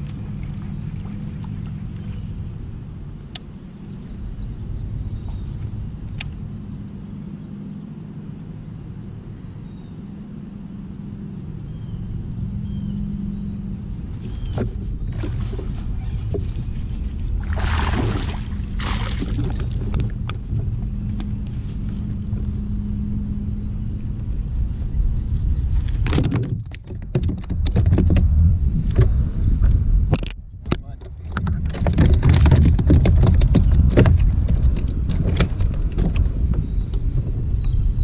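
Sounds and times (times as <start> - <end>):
birds chirping: 0.0 - 26.3, 33.3 - 38.0
wind rumble on microphone: 0.0 - 38.0
fish splashing at water surface: 17.4 - 19.9.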